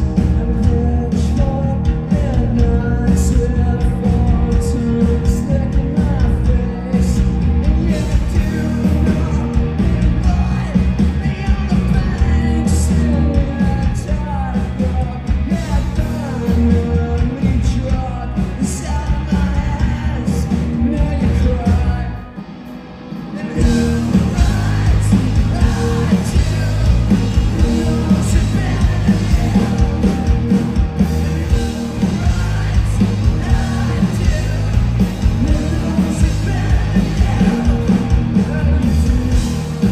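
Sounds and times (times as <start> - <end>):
rock band playing: 0.0 - 39.9
person singing: 23.3 - 39.9.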